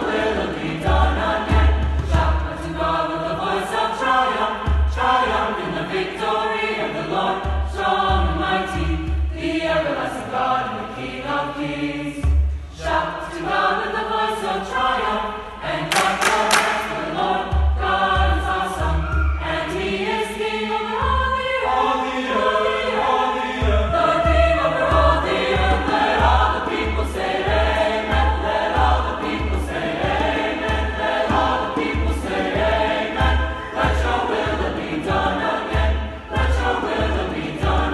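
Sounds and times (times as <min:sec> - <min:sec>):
chorale singing in harmony: 0:00.0 - 0:37.9
hand claps: 0:15.9 - 0:17.1.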